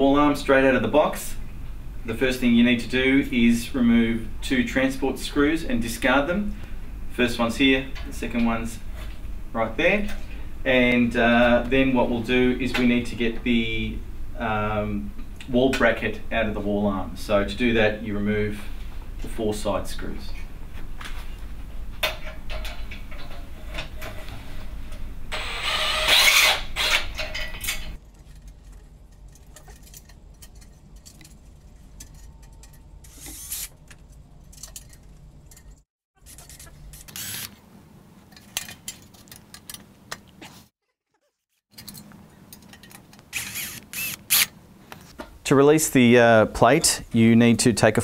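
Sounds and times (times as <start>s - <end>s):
electric drill whirring: 25.3s - 27.2s, 33.0s - 33.7s, 37.0s - 37.6s, 43.3s - 44.5s.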